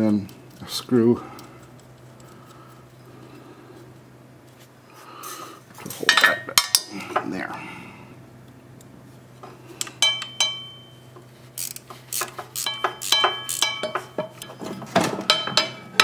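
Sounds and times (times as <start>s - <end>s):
faint steady hum: 0.0s - 16.0s
metal tools clinking: 11.6s - 16.0s.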